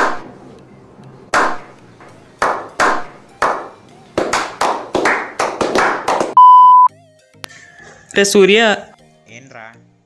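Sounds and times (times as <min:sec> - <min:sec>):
group of people clapping: 0:02.4 - 0:06.4.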